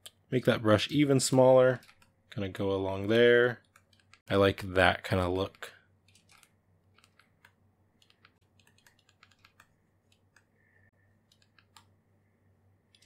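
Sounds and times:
low steady hum: 0.0 - 13.0
computer keys clicking: 1.3 - 2.4, 3.6 - 4.3, 5.4 - 10.5, 11.2 - 11.9.

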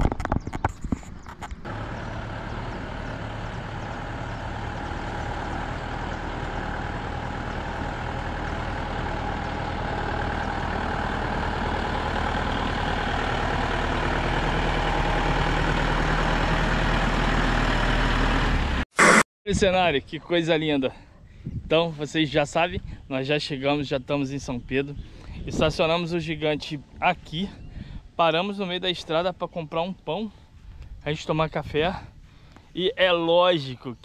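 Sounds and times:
bus engine running: 1.6 - 19.2.

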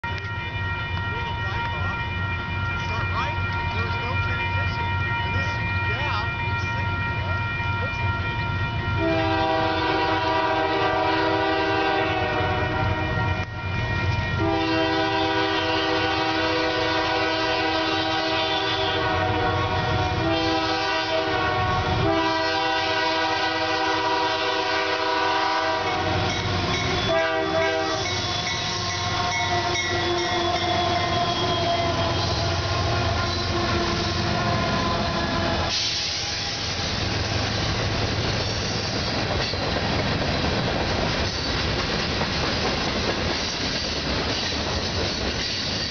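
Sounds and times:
locomotive air horn blasts: 0.0 - 37.1
train wheels clattering on rails: 25.8 - 32.6, 35.6 - 45.9.

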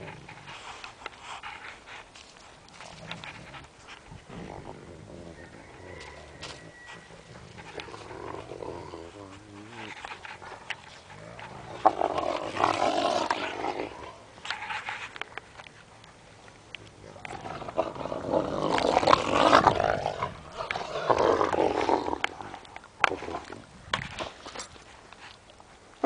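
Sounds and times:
wolves growling: 0.0 - 1.8, 2.7 - 15.0, 16.9 - 24.6.

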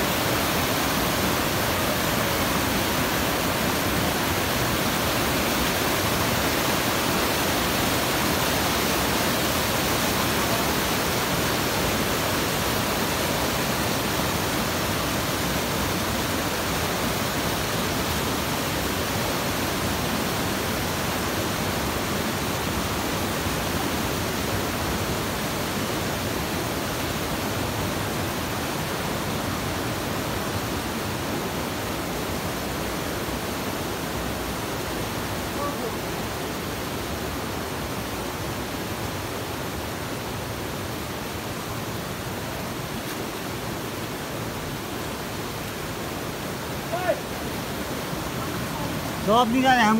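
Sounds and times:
stream rushing over boulders: 0.0 - 49.9.

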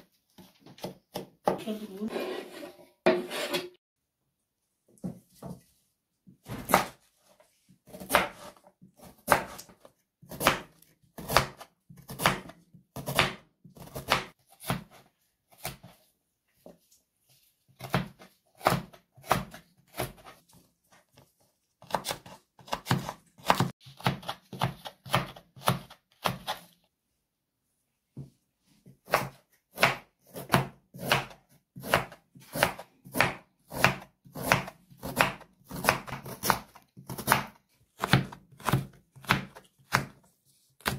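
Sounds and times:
knife chopping on wooden board: 6.4 - 7.0, 7.9 - 9.7, 10.3 - 16.0, 17.8 - 20.4, 21.8 - 26.6, 29.0 - 40.2.

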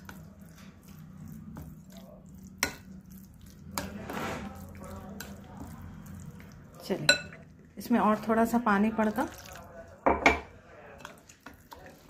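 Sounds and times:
spoon stirring thick batter: 0.0 - 12.0
spoon clinking against glass bowl: 7.0 - 7.4.

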